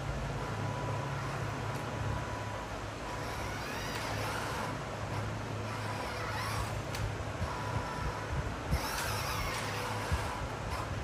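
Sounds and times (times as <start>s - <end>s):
electric motor whining: 0.0s - 11.0s.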